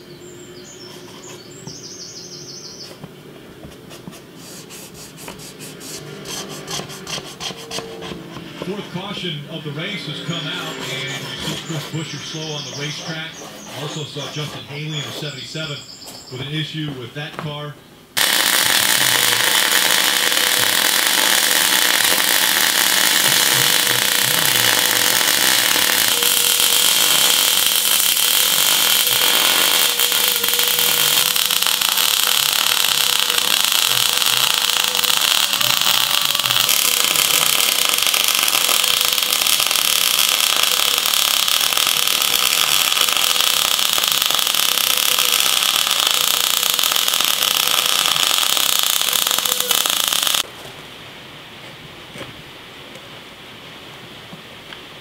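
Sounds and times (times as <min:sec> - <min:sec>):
welder arc crackling and sizzling: 0:18.2 - 0:50.5.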